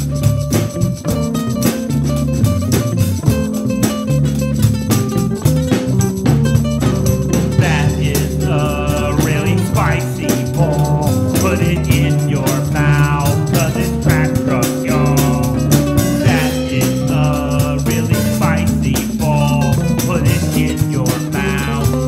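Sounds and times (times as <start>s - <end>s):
band music: 0.0s - 22.0s
bass line: 0.0s - 22.0s
drum beat: 0.0s - 22.0s
melodic lead with bending phrases: 0.0s - 22.0s.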